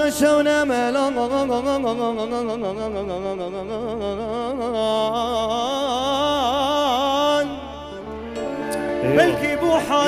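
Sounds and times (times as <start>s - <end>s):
electric violin melody: 6.8s - 10.0s.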